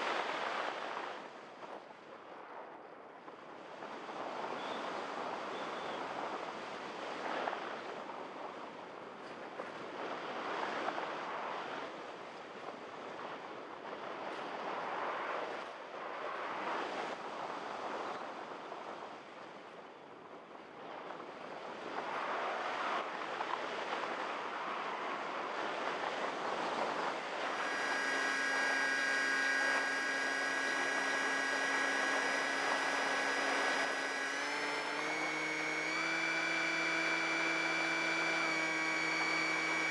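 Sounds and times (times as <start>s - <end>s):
electric motor whining: 27.4s - 39.9s.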